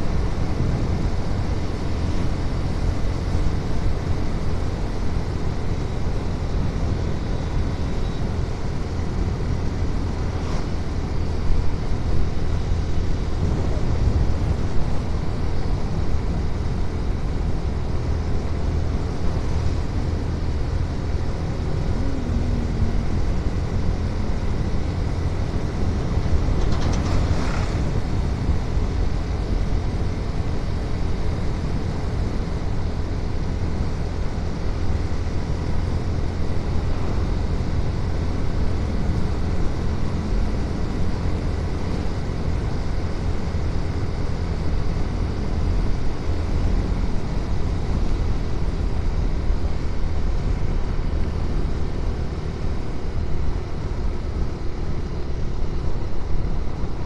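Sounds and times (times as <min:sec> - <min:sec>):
motorcycle engine rumble: 0:00.0 - 0:33.5.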